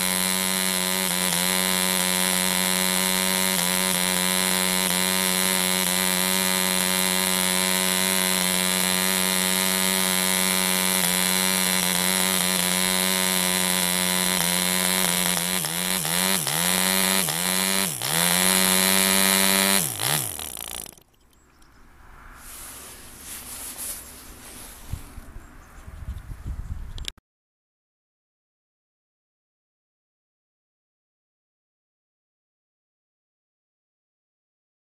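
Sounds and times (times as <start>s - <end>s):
model engine with propeller running: 0.0s - 21.2s
propeller winding down: 0.0s - 21.2s.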